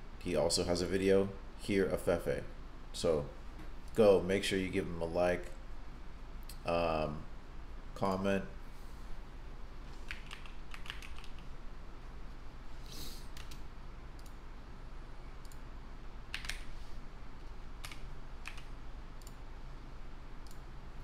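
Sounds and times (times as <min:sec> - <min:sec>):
keyboard typing: 0:10.1 - 0:11.5, 0:16.3 - 0:16.7, 0:17.8 - 0:19.4
brief hiss: 0:12.8 - 0:13.3.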